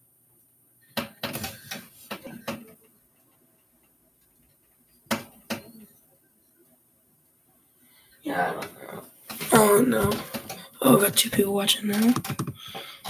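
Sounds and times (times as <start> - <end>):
sharp clicks and knocks: 1.0 - 5.9, 11.9 - 12.9.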